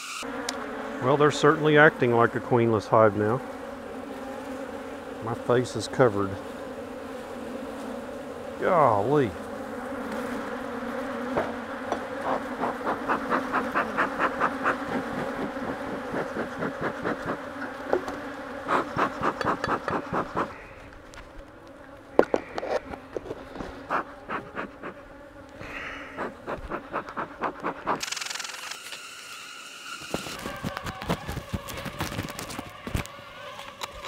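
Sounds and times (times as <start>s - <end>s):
bees buzzing: 0.0s - 34.0s
bellows puffing: 10.2s - 28.1s.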